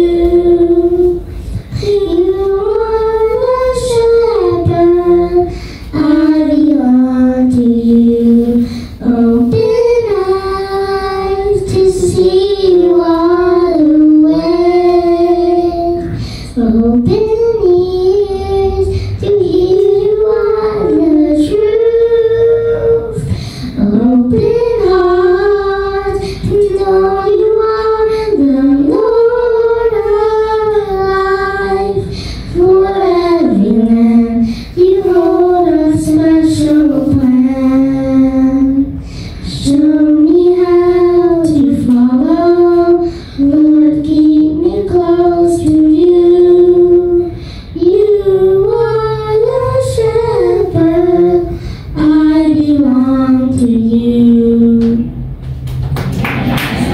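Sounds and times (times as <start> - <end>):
children singing a hymn: 0.0 - 55.1
singers breathing: 1.2 - 2.0, 5.5 - 6.0, 8.5 - 9.0, 16.0 - 16.6, 18.8 - 19.2, 23.2 - 23.8, 26.1 - 26.5, 32.0 - 32.6, 34.4 - 34.8, 38.9 - 39.5, 43.0 - 43.6, 47.3 - 47.8, 51.5 - 52.0.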